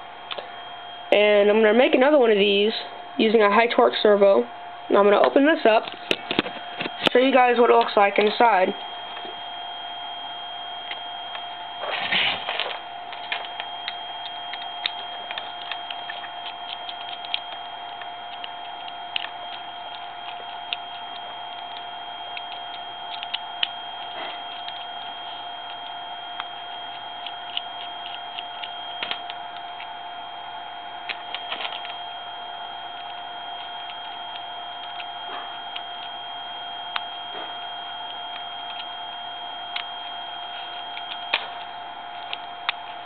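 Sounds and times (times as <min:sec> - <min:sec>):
high-pitched whine: 0:00.0 - 0:43.0
screwdriver clicking on screws: 0:12.6 - 0:29.9, 0:38.0 - 0:38.9.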